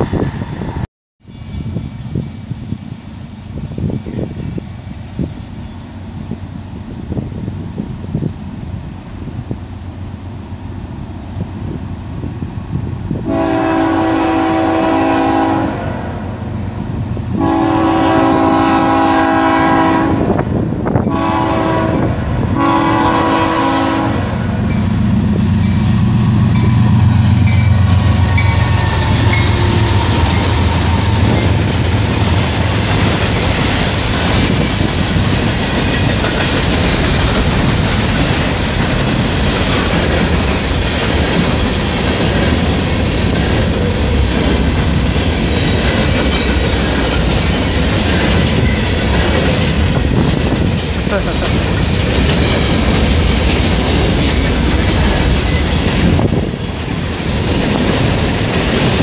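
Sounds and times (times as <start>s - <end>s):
diesel locomotive engine rumble: 0.0s - 59.0s
train air horn blasts: 13.2s - 16.4s, 17.3s - 20.4s, 21.1s - 24.7s
freight cars clickety-clack: 24.6s - 59.0s.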